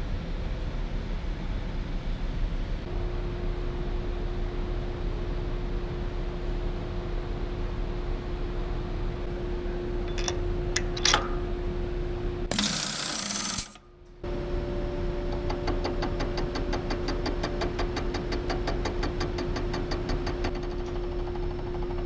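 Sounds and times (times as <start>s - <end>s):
metallic clicks: 10.1s - 11.4s
milling machine motor hum: 12.4s - 22.0s.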